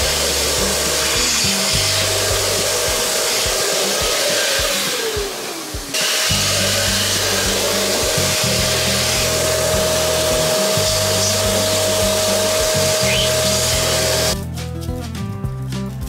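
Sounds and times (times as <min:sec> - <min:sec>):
handheld vacuum motor whining: 0:00.0 - 0:14.4.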